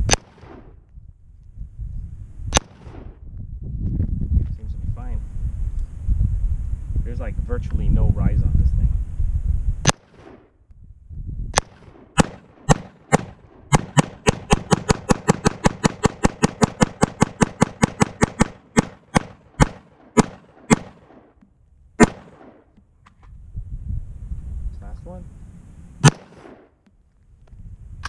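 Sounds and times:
rifle shots: 0.0s - 0.8s, 2.5s - 3.2s, 9.8s - 10.6s, 11.5s - 21.4s, 22.0s - 22.8s, 26.0s - 26.8s.

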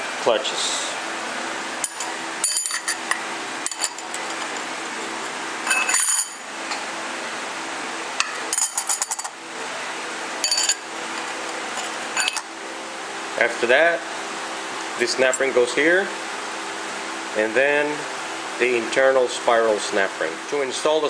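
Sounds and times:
steady background hum: 0.0s - 21.0s
metal clutch plates clinking: 1.8s - 4.7s, 5.6s - 6.4s, 10.4s - 12.5s.

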